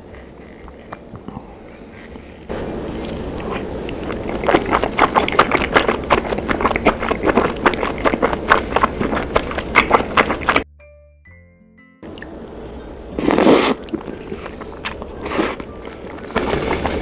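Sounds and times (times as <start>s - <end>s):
wet sticky chewing: 0.0s - 10.6s, 13.2s - 17.0s.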